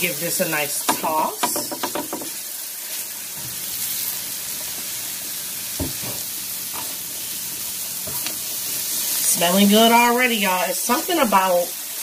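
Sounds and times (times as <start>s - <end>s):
vegetables sizzling on a griddle: 0.0s - 12.0s
metal spatula knocks: 0.9s - 2.3s.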